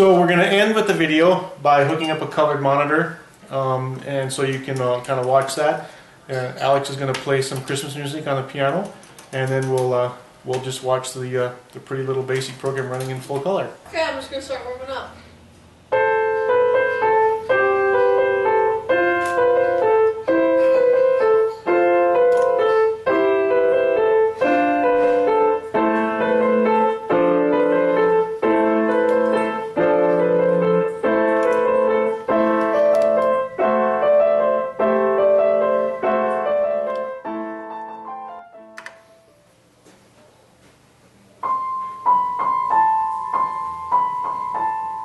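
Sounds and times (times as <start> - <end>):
grand piano chords: 13.9 - 39.6, 41.4 - 45.0.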